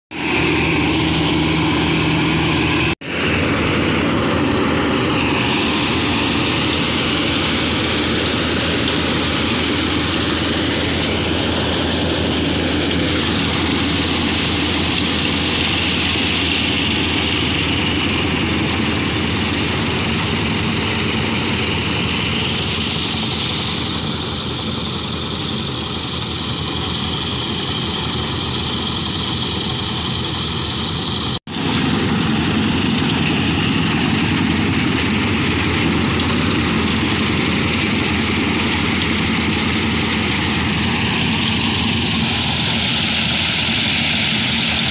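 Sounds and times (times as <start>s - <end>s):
combine harvester droning: 0.1s - 44.9s.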